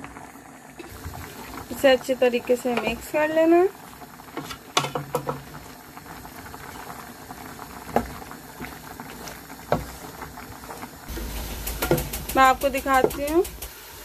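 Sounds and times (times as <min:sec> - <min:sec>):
sauce bubbling in pot: 0:00.0 - 0:14.0
wooden spoon stirring: 0:01.0 - 0:13.4
spoon knocking against pot: 0:11.8 - 0:13.4.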